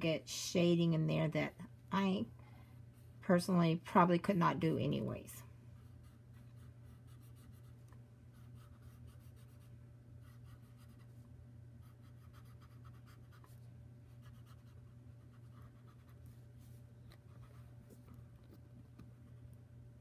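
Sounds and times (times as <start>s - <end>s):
pencil scratching on paper: 5.8s - 11.1s, 11.8s - 16.4s.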